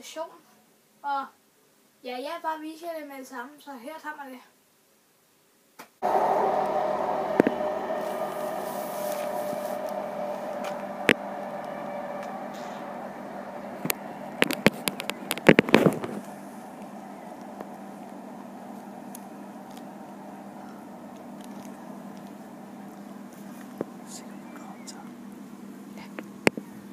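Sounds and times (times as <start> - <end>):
train running: 6.0 - 24.2.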